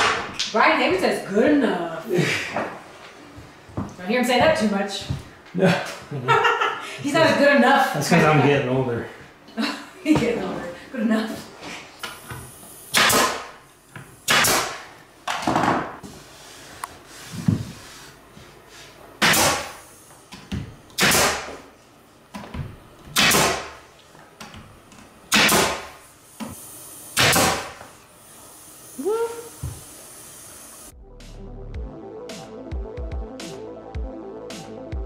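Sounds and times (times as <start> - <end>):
pneumatic nail gun shots: 12.8 - 13.6, 14.2 - 14.9, 19.2 - 19.9, 20.9 - 21.6, 23.1 - 23.8, 25.3 - 27.8.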